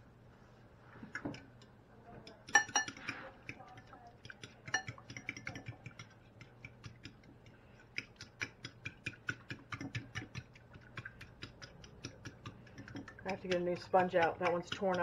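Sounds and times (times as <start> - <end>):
fork beating eggs in glass dish: 1.1 - 15.0
fork tines clicking on glass: 2.5 - 3.0.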